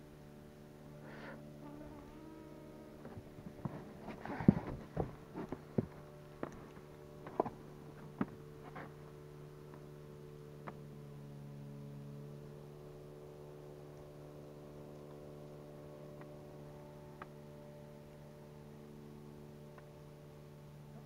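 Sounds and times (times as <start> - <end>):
low hum with overtones: 0.0 - 21.0
faint ticks: 14.9 - 16.4.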